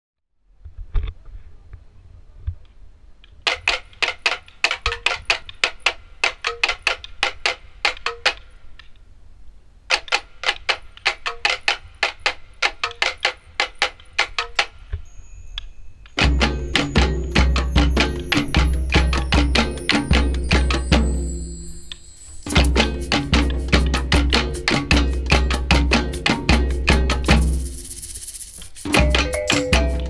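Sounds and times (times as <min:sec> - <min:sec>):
music with a beat: 0:16.2 - 0:21.4, 0:22.4 - 0:30.0.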